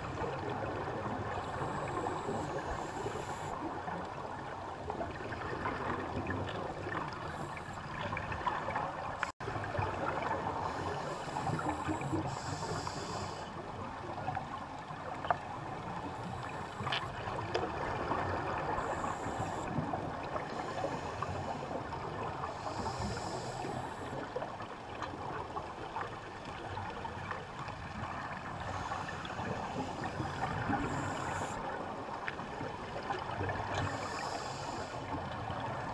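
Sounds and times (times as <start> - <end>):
underwater crackling hiss: 1.4 - 3.6, 10.3 - 13.6, 18.7 - 24.3, 28.6 - 31.8, 33.7 - 35.4.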